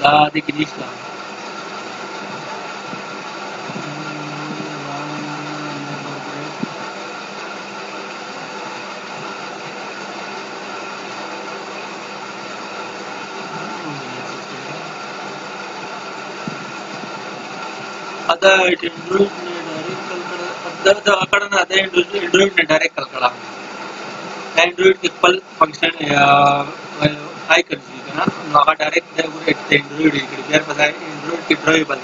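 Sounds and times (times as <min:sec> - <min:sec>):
steady whirring: 0:00.0 - 0:32.0
short low hum: 0:01.8 - 0:07.3, 0:12.4 - 0:23.4.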